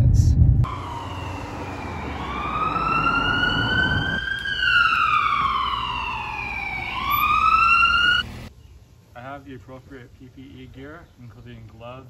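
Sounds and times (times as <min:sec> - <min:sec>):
low rumble: 0:00.0 - 0:06.4
emergency siren wailing: 0:00.6 - 0:08.5.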